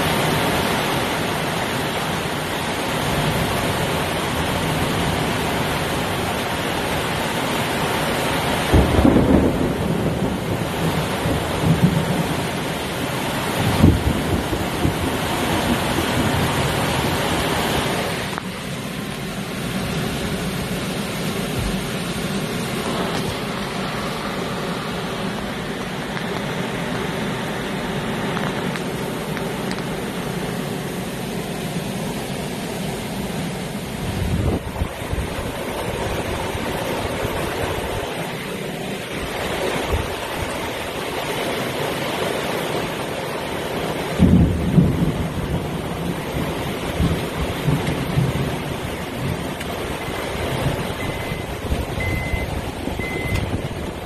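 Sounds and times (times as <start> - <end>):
gusting wind: 0.0 - 54.0
heavy rain: 0.0 - 54.0
thunder rolling: 8.7 - 12.6, 13.6 - 17.0
low thunder rumble: 8.7 - 12.7, 13.6 - 17.4, 44.2 - 54.0.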